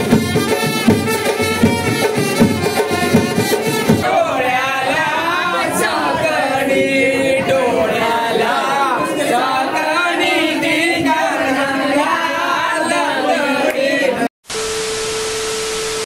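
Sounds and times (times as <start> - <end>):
group of voices chanting: 3.9 - 14.3.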